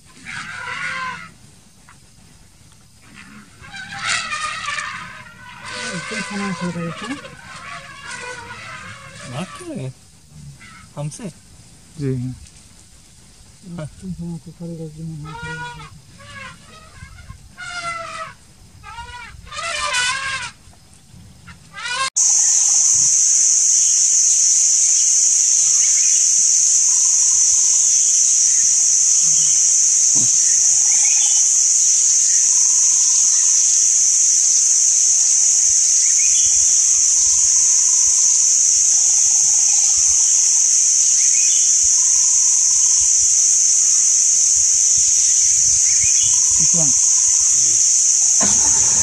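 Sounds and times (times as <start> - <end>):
cicadas droning: 0.0 - 49.0
faint bird calls: 44.9 - 49.0.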